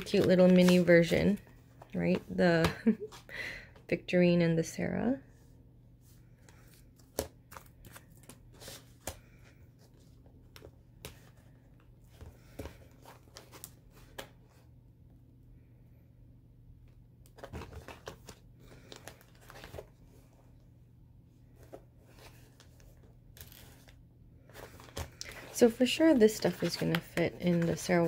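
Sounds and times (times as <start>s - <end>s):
wallets handled clicks and rustles: 0.0s - 2.3s, 22.1s - 28.0s.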